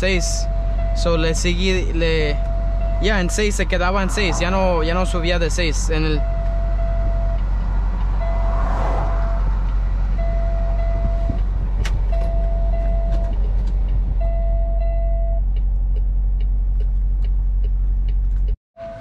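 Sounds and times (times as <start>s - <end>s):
low hum in cab: 0.0s - 8.3s, 9.7s - 19.0s
truck warning chime beeping: 0.0s - 8.6s, 9.6s - 15.6s.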